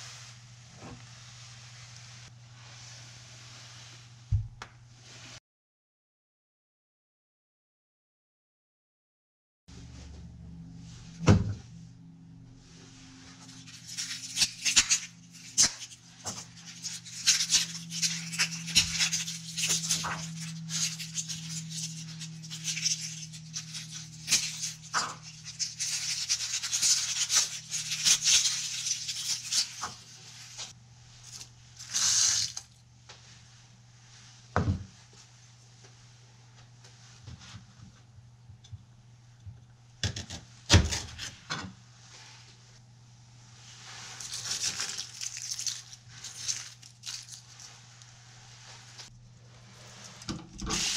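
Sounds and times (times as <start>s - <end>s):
ingredients rustling and scraping: 12.9s - 34.3s, 43.6s - 50.9s.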